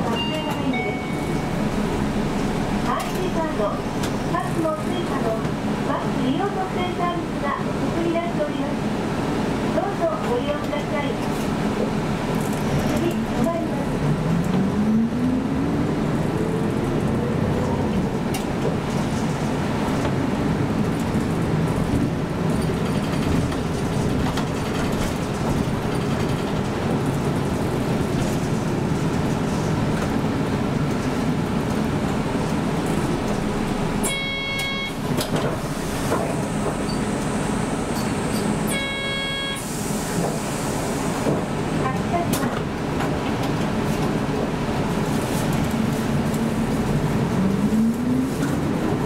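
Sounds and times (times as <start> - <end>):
bus engine and road noise: 0.0 - 49.0
horn-like tone: 34.0 - 35.0, 38.7 - 39.7.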